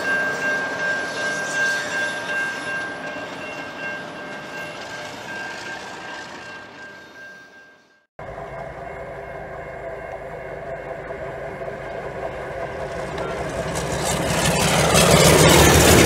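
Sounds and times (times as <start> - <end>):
locomotive engine drone: 0.0 - 16.0.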